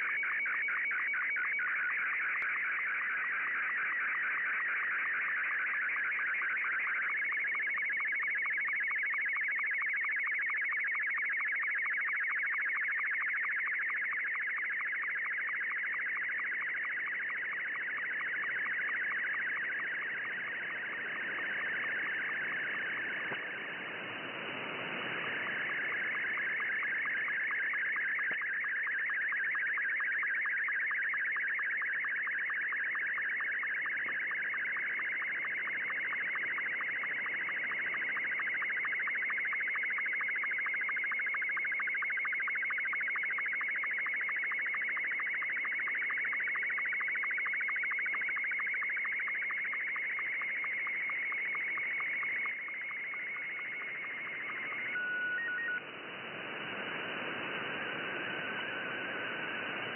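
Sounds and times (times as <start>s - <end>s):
warbling radio picture signal: 0.0s - 10.3s, 13.2s - 59.9s
sync ticks: 17.8s - 23.6s, 25.2s - 28.6s
radio band hiss: 19.7s - 27.5s, 51.5s - 59.9s.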